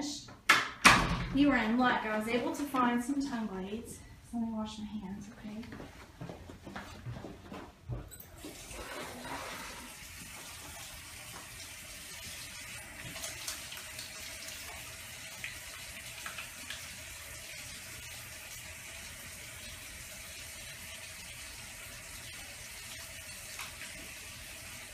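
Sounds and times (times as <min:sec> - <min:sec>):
hands washing under water: 0:08.4 - 0:17.1.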